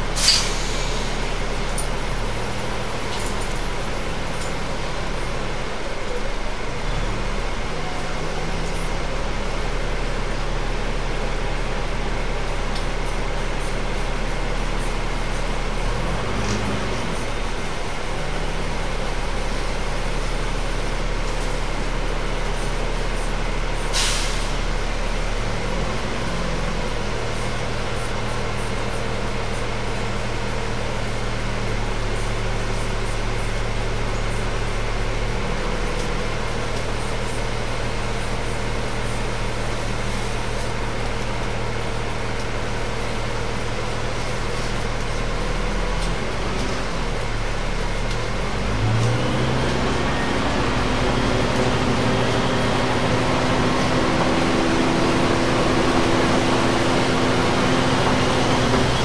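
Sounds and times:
bus engine hum: 0:00.0 - 0:59.0
air brake hiss: 0:00.2 - 0:01.3, 0:23.9 - 0:24.6.

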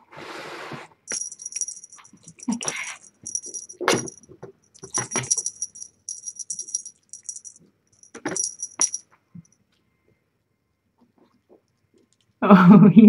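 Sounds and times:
small bell jingling: 0:01.1 - 0:09.0.

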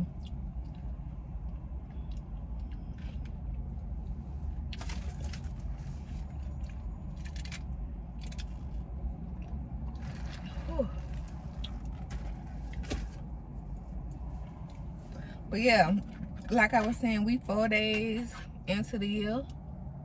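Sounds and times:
soft chewing and mouth clicks: 0:00.0 - 0:04.8, 0:08.2 - 0:12.8
low rumble inside car: 0:00.0 - 0:20.0.

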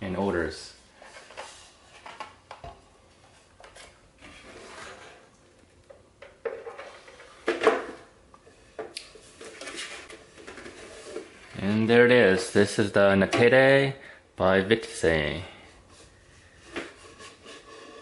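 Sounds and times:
plastic parts scraping: 0:09.2 - 0:11.6.

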